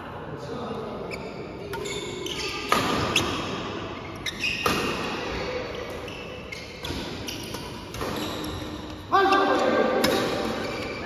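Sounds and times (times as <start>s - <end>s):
racket hitting shuttlecock: 1.7s - 3.7s, 4.6s - 6.1s, 6.8s - 8.9s, 10.0s - 10.8s.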